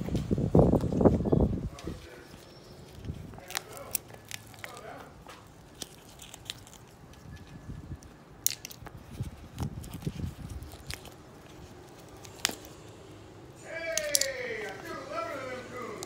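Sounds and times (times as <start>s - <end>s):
resin clicking and crackling: 1.8s - 13.1s, 13.8s - 14.9s.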